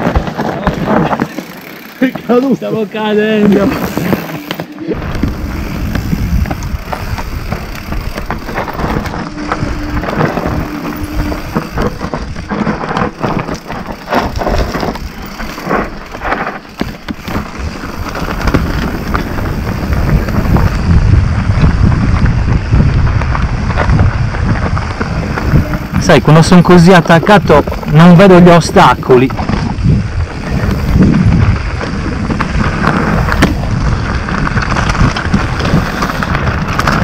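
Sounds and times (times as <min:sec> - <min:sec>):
bike rattling over bumps: 0:00.0 - 0:37.0
tyres crunching over stones: 0:00.0 - 0:37.0
low rumble: 0:03.9 - 0:16.6.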